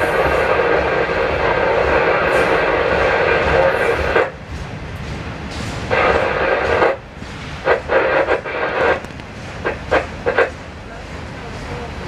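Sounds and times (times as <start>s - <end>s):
freight train rumbling past: 0.0s - 12.0s
scanner radio bursts: 5.9s - 7.0s, 7.6s - 10.6s.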